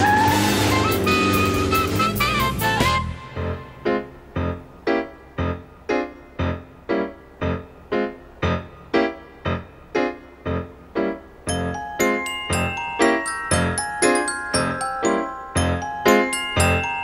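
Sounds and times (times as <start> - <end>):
slow piano-like keyboard music: 0.0 - 17.0.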